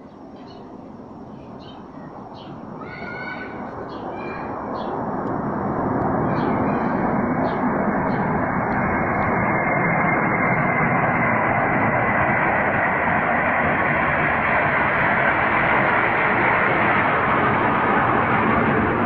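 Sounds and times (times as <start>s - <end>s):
jets flying overhead: 0.0s - 19.0s.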